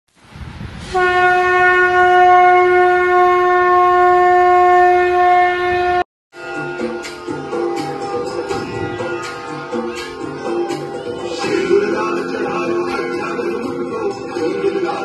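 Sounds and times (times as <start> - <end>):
conch shell blown: 0.9 - 11.7.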